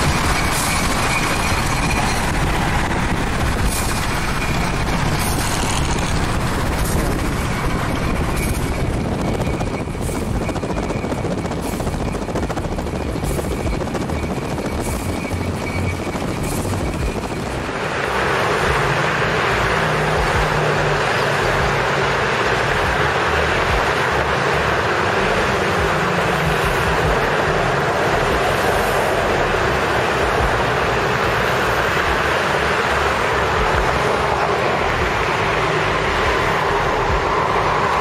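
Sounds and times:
wind on microphone: 0.0 - 18.8
road and wind noise inside car: 0.0 - 38.0.

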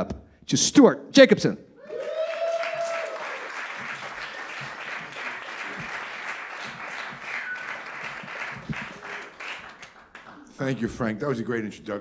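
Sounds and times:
audience applauding: 1.8 - 10.6.

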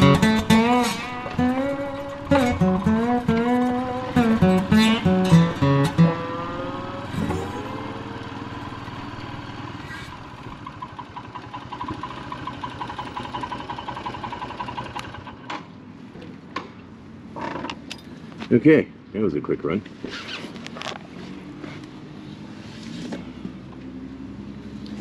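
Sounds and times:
motorcycle engine running: 0.0 - 15.4.

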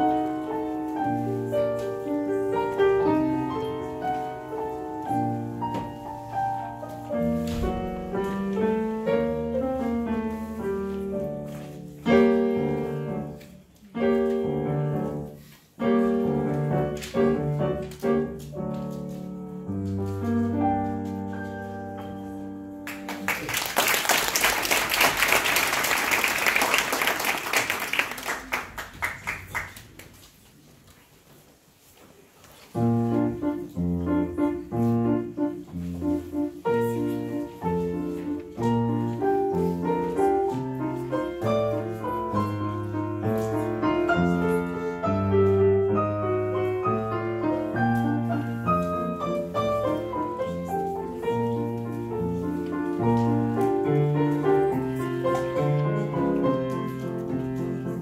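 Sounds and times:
grand piano piece: 0.0 - 30.2, 32.7 - 58.0
audience applause: 22.8 - 30.1.

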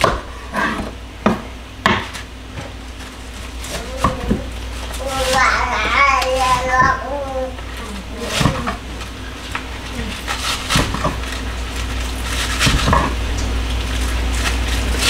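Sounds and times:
knife chopping on cutting board: 0.0 - 2.7, 4.0 - 4.4, 10.3 - 11.3
steady low hum: 0.0 - 15.0.

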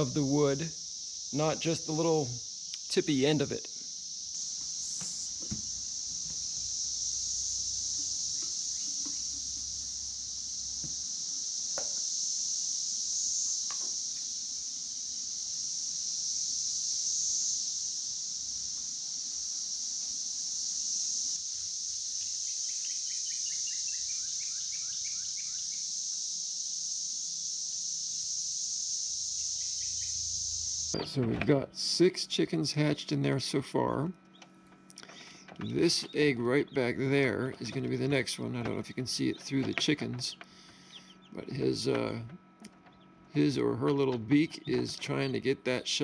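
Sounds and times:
insects chirping: 0.0 - 46.0
light knocks: 4.6 - 6.7
bird chirping: 8.3 - 9.5, 22.2 - 25.8, 29.4 - 31.2, 34.2 - 45.4.

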